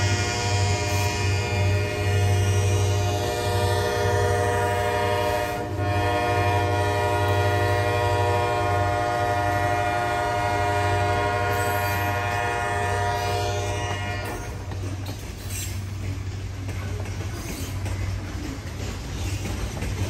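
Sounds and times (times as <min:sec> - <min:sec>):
locomotive horn blast: 0:00.0 - 0:14.7
low rumble of passing train: 0:00.0 - 0:20.0.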